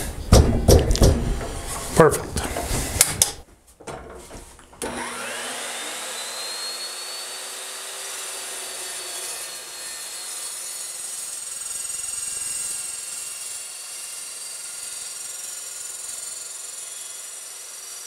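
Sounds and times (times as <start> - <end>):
chop saw cutting steel: 4.8 - 18.0.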